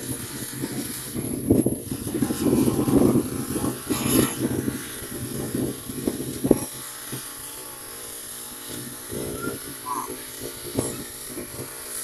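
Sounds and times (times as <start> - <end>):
wind buffeting microphone: 0.0 - 6.8
small motor humming: 0.0 - 12.0.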